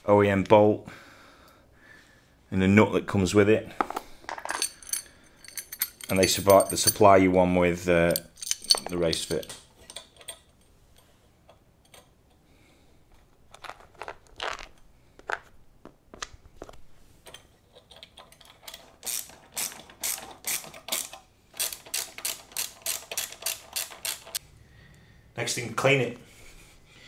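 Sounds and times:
socket ratchet clicking: 17.9s - 24.4s.

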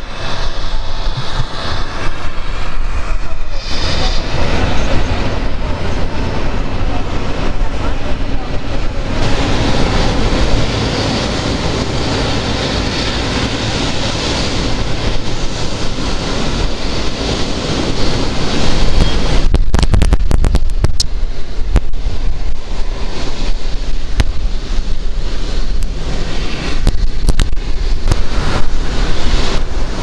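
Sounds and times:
low rumble: 0.0s - 30.0s
wind buffeting microphone: 0.0s - 30.0s
sharp crackles: 18.9s - 22.0s, 26.6s - 28.8s.

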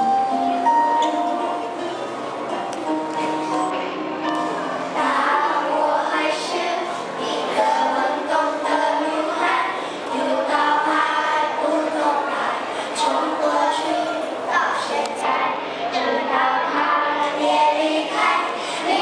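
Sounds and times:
musical accompaniment: 0.0s - 9.4s
children singing: 4.8s - 19.0s.

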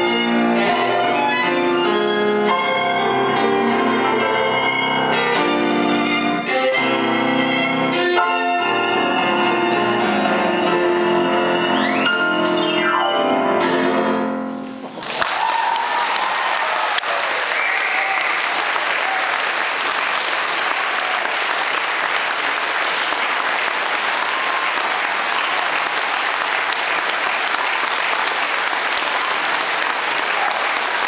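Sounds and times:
violin and piano chord: 0.0s - 14.8s
audience applause: 14.9s - 31.0s.

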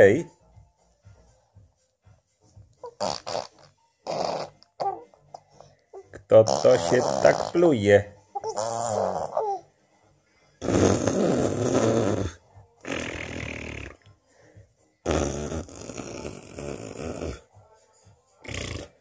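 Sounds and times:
baby blowing raspberries: 2.8s - 5.4s, 8.4s - 9.6s, 10.6s - 14.0s, 15.0s - 17.4s.

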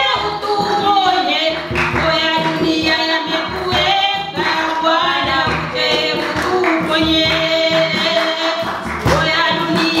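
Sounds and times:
group of voices singing: 0.0s - 10.0s.

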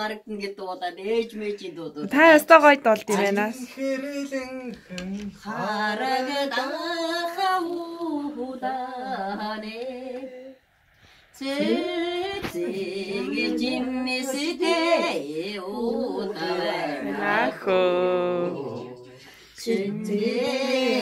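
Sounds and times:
woman singing unaccompanied: 3.0s - 10.5s, 11.4s - 21.0s.

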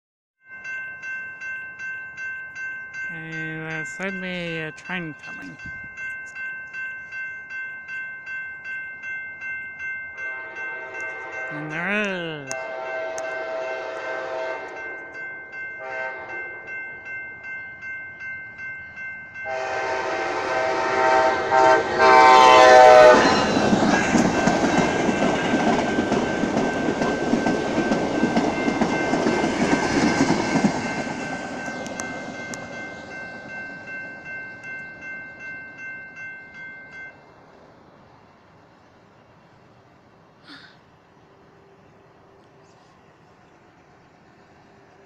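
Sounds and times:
crossing warning bell ringing: 0.4s - 38.4s
train rumbling by: 9.4s - 40.4s, 41.0s - 45.0s
train horn blasts: 10.2s - 11.8s, 12.4s - 15.1s, 15.8s - 16.7s, 19.5s - 23.7s
wheels clacking on rail joints: 23.2s - 35.8s.

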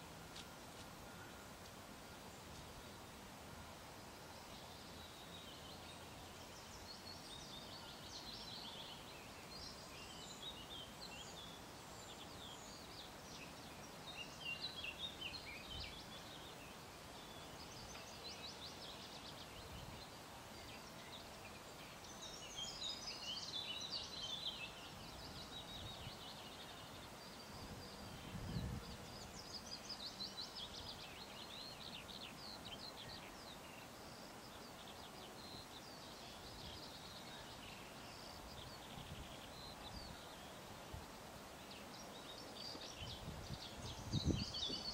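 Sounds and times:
songbirds singing: 0.0s - 44.9s.

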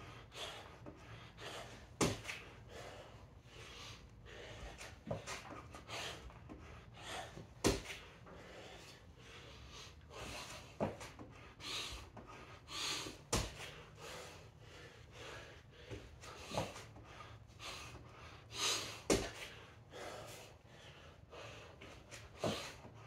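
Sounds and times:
man breathing hard: 0.0s - 23.0s
thuds on rubber gym floor: 2.0s - 2.4s, 7.6s - 8.0s, 13.3s - 13.6s, 19.1s - 19.4s.

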